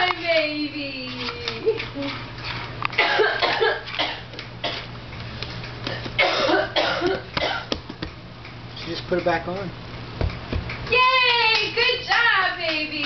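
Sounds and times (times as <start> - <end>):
person coughing: 3.0 - 4.8, 5.9 - 7.7.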